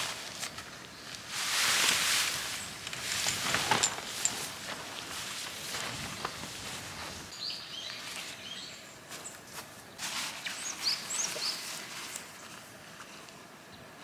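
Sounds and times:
canvas tent rustling: 0.0s - 7.3s, 9.0s - 13.2s
small birds chirping: 7.3s - 12.6s.

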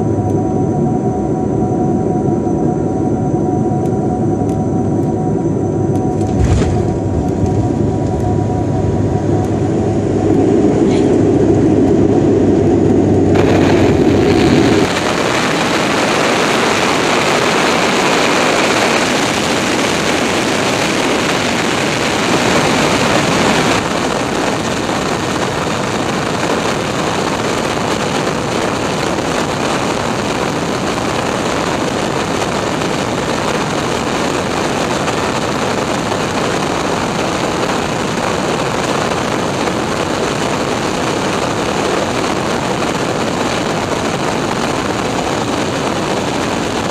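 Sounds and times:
jet engine and airflow rush: 0.0s - 46.9s
turboprop drone: 0.0s - 46.9s.

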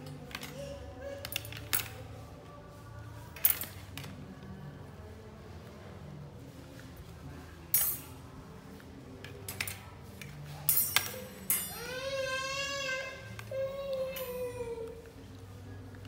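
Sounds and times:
baskets and hangers clinking: 0.0s - 4.4s, 6.8s - 12.4s.

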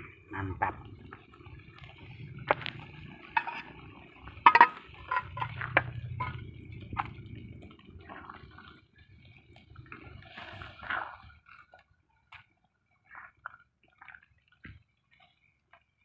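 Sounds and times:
wet squelching and dripping: 0.2s - 16.0s
spatula scraping in a wok: 2.4s - 7.2s.

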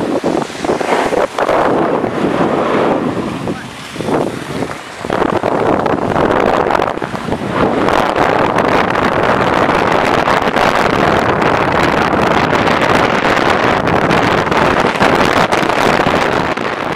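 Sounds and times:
skis scraping over snow: 0.0s - 10.5s
wind on microphone: 0.0s - 16.9s.

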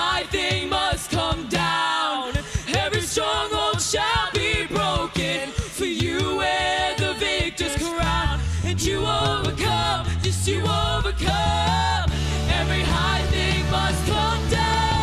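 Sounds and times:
person singing: 4.0s - 15.0s
drum hits: 7.5s - 15.0s
deep bass: 8.0s - 15.0s
band playing: 8.7s - 15.0s.

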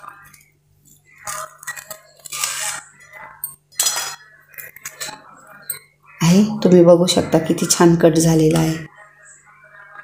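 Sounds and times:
knife scraping on a metal plate: 3.8s - 5.2s.

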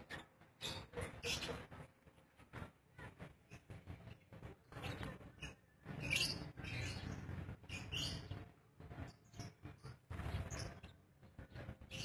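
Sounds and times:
lovebirds chirping: 3.4s - 12.0s.

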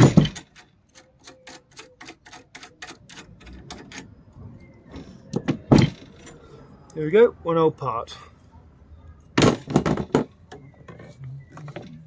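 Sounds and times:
metal clunks: 0.0s - 0.8s, 4.9s - 6.4s, 9.4s - 12.0s
ratcheting spanner clicking: 0.3s - 4.1s.

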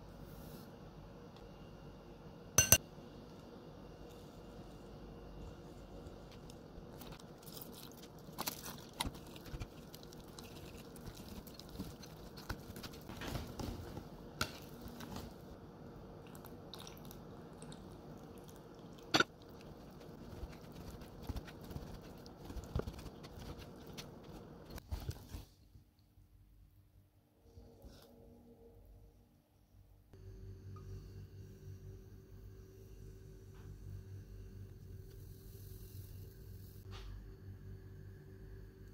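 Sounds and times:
whisk squelching in batter: 7.1s - 13.1s, 19.4s - 24.8s.

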